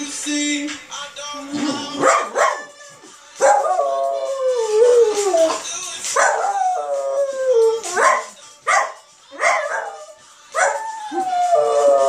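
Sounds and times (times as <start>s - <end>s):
song playing: 0.0s - 12.0s
dog howling: 6.2s - 8.4s, 9.4s - 12.0s.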